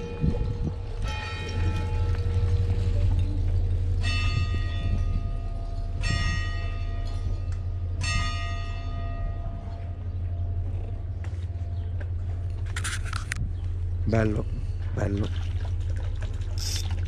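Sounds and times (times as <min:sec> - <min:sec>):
church bell tolling: 0:00.0 - 0:10.7
low rumble: 0:00.0 - 0:17.0.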